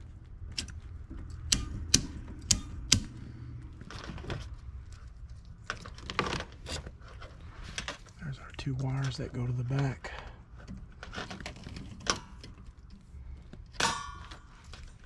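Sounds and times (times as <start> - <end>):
clicks of wiring and plug connector: 0.5 - 3.2.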